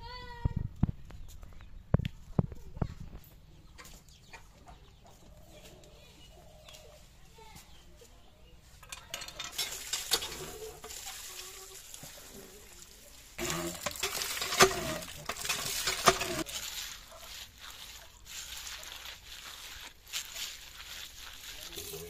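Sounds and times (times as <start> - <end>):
hands rubbing wet fish: 10.8 - 22.0
water splashing into basket: 12.8 - 17.0.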